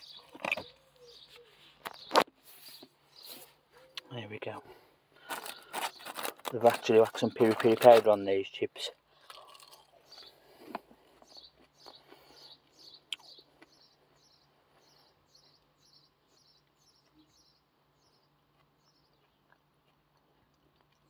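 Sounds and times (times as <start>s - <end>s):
faint bird chirping: 0.0s - 6.3s, 9.1s - 21.0s
chewing chips: 5.2s - 8.1s, 9.1s - 10.7s.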